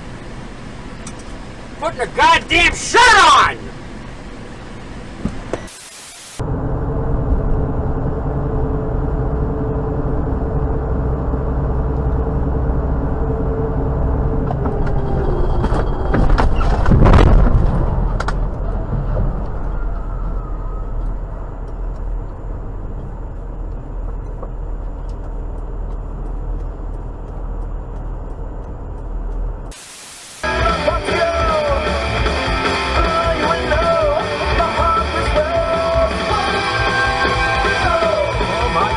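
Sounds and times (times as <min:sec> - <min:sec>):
traffic passing close: 0:00.0 - 0:05.4
engine and road noise in vehicle: 0:00.0 - 0:38.9.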